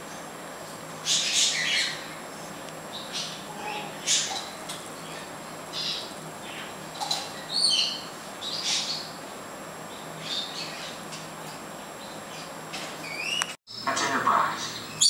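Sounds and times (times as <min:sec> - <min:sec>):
parrot chirping: 0:01.0 - 0:02.1, 0:07.4 - 0:09.2.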